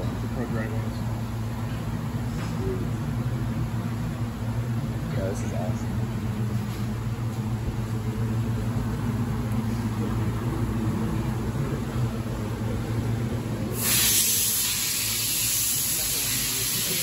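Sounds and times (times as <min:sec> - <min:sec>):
machine-shop equipment humming: 0:00.0 - 0:17.0
loud hiss of air: 0:13.7 - 0:17.0.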